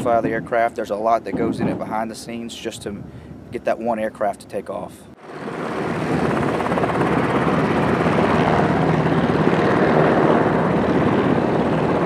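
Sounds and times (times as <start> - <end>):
helicopter engines and rotor din: 5.2 - 12.0.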